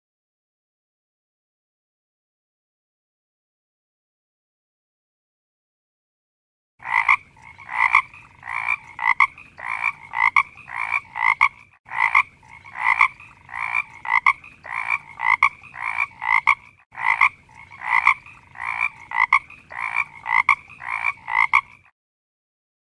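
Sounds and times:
frog croaking: 0:06.8 - 0:21.9.

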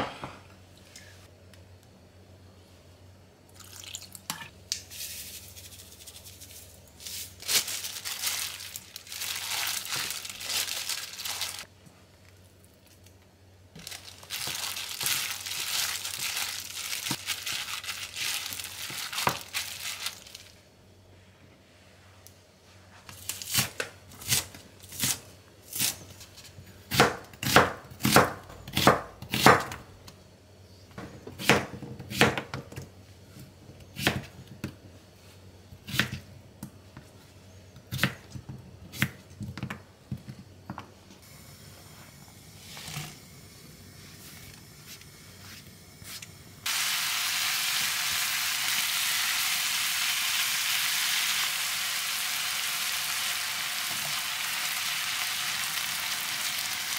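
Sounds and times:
meat sizzling in a pan: 0:46.7 - 0:56.9.

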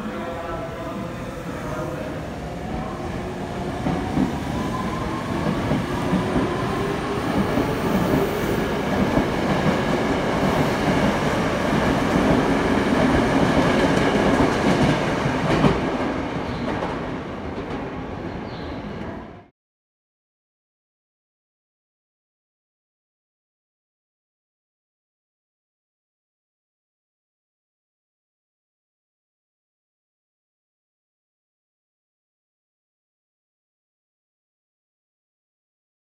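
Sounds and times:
train rumble and wheel clatter: 0:00.0 - 0:19.5.

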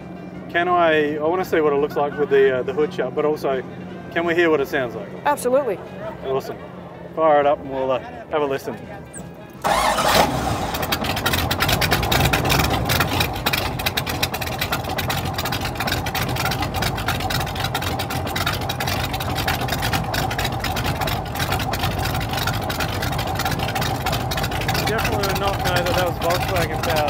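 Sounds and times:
engine running through open exhaust: 0:09.1 - 0:27.0.

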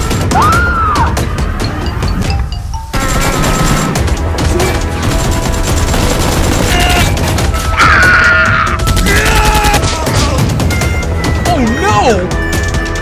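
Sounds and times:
rapid gunfire sound effects: 0:00.0 - 0:01.5, 0:02.9 - 0:11.2
background music: 0:00.0 - 0:13.0
man yelling: 0:09.0 - 0:10.2.

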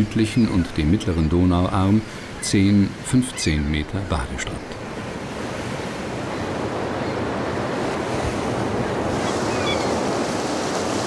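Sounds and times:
surf breaking on beach: 0:04.8 - 0:11.0.

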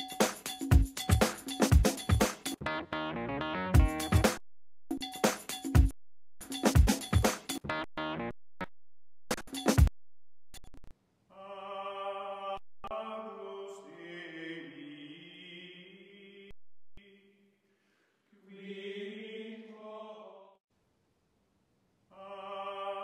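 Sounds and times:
voices singing chant-like notes: 0:11.4 - 0:16.5, 0:22.2 - 0:23.0.

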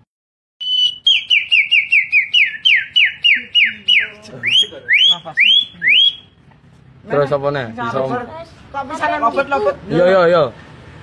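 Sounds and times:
boy whistling birdcall imitation: 0:00.6 - 0:06.4.

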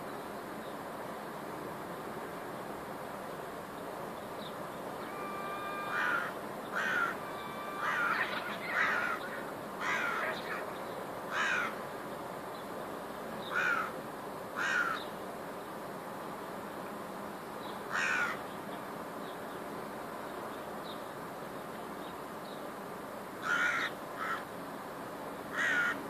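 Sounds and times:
crow cawing: 0:05.0 - 0:10.6, 0:11.3 - 0:11.8, 0:13.5 - 0:14.0, 0:14.6 - 0:15.0, 0:17.9 - 0:18.4, 0:23.4 - 0:24.5, 0:25.5 - 0:26.0.

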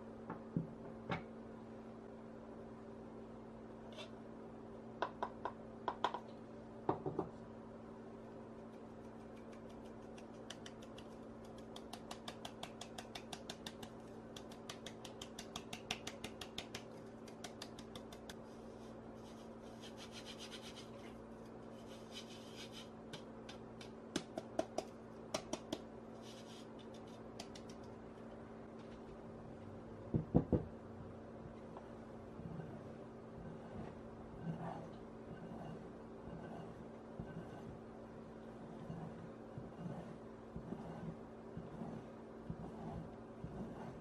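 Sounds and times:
palm rubbing flour through mesh: 0:08.7 - 0:21.1, 0:21.7 - 0:23.0, 0:26.2 - 0:27.7, 0:38.6 - 0:44.0.

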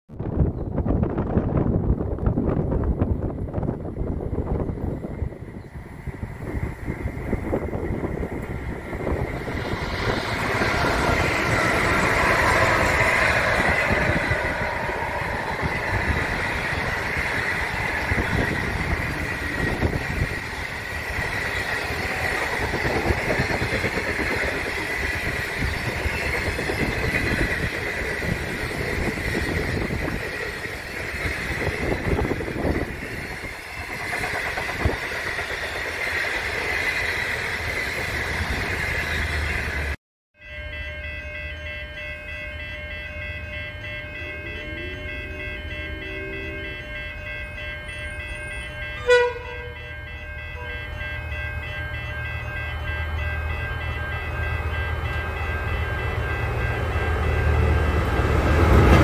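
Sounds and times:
wheels rumbling on rail: 0:00.1 - 0:59.0
diesel locomotive passing: 0:00.2 - 0:59.0
high ringing tone: 0:04.5 - 0:35.9, 0:40.4 - 0:58.3
train clatter: 0:06.1 - 0:40.0, 0:53.8 - 0:59.0.

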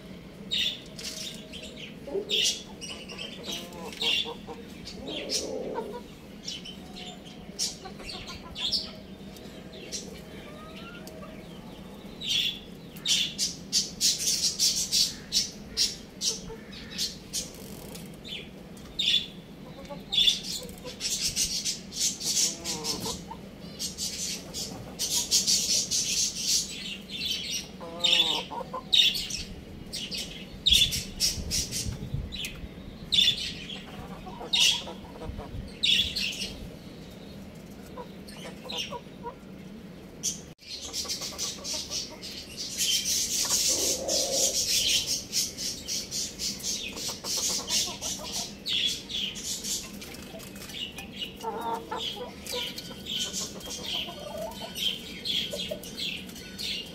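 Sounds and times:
young chickens clucking: 0:00.2 - 0:56.9
birds chirping rapidly: 0:00.3 - 0:56.9.

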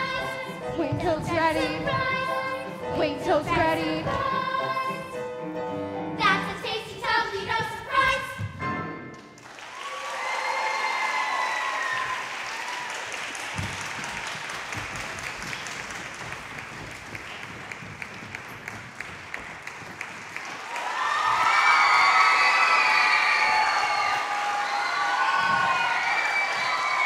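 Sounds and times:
piano accompaniment: 0:00.0 - 0:09.4
audience cheering: 0:09.4 - 0:15.5, 0:20.5 - 0:27.0
audience applause: 0:09.4 - 0:27.0.

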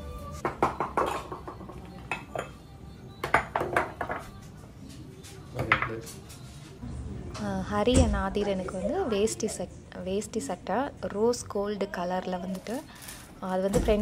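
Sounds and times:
cups clinking and knocking on counter: 0:00.4 - 0:02.6, 0:03.2 - 0:04.3.

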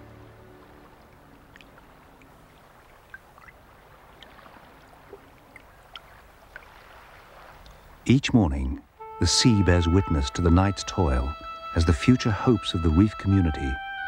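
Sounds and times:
sea water lapping: 0:00.0 - 0:08.2
small drip-like plops: 0:00.9 - 0:08.0.

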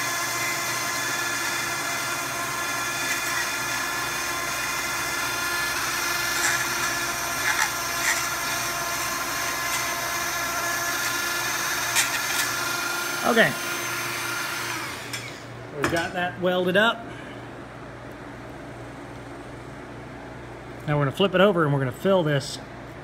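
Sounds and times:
rotary tool running: 0:00.0 - 0:15.4.

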